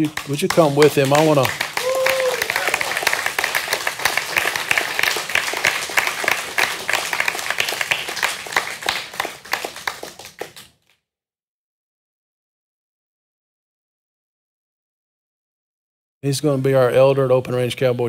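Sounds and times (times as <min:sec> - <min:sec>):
congregation applauding: 0:00.0 - 0:10.8.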